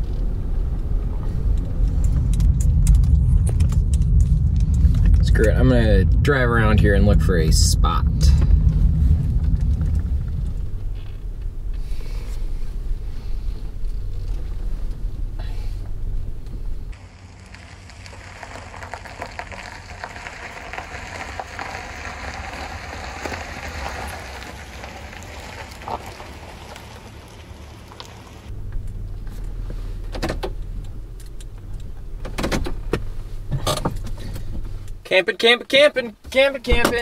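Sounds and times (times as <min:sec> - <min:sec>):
car road and engine rumble: 0:00.0 - 0:37.0
crackling hiss: 0:07.4 - 0:35.0.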